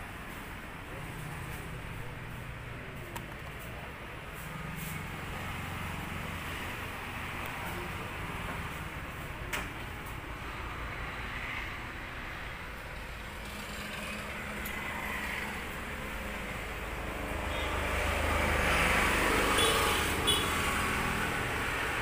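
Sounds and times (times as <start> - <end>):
road traffic noise: 0.0 - 22.0
vehicle passing: 10.4 - 22.0.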